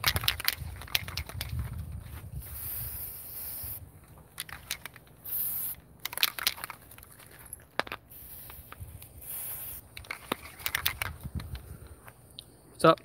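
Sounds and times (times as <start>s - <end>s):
spray can clicks and rattles: 0.0s - 1.7s, 2.4s - 11.7s
aerosol spray can hissing: 2.4s - 3.8s, 4.7s - 5.8s, 8.1s - 10.9s.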